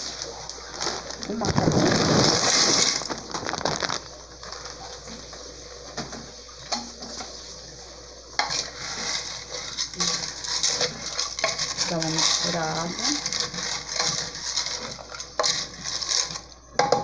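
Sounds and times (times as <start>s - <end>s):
dry pasta pouring into pot: 0.0s - 4.8s, 8.4s - 16.5s
wooden spoon stirring dry pasta: 0.0s - 5.5s, 8.4s - 17.0s.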